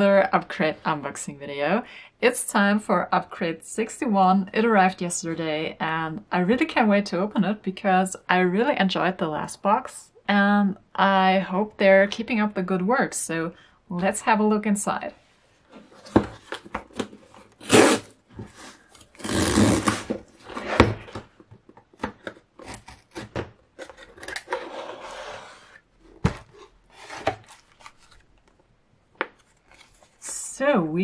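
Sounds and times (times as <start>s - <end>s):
cardboard box cut with scissors: 17.6s - 20.9s, 22.6s - 25.8s.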